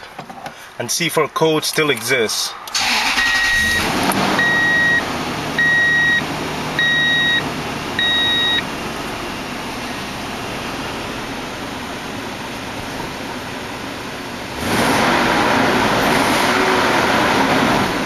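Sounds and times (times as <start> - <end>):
dashboard warning chime beeping: 2.8 - 3.8, 4.4 - 7.4, 8.0 - 8.7
engine idling: 4.4 - 14.6.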